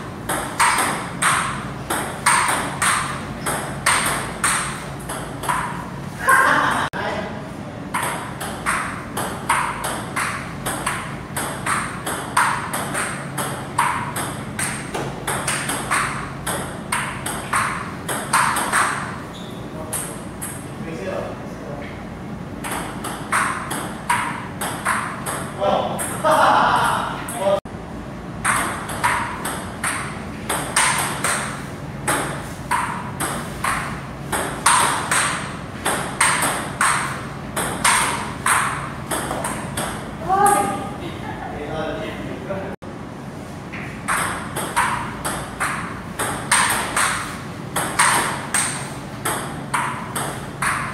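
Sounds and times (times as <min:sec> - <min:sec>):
steady low hum: 0:00.0 - 0:50.9
ping pong ball clicking off paddles: 0:00.2 - 0:05.9, 0:07.9 - 0:19.2, 0:19.9 - 0:20.7, 0:22.6 - 0:27.4, 0:28.4 - 0:40.7, 0:43.8 - 0:50.9
ball bouncing on table: 0:00.3 - 0:05.8, 0:07.9 - 0:19.2, 0:22.6 - 0:26.2, 0:28.4 - 0:40.7, 0:43.8 - 0:50.9
table tennis ball clicking: 0:00.3 - 0:05.8, 0:07.9 - 0:19.1, 0:47.8 - 0:50.9.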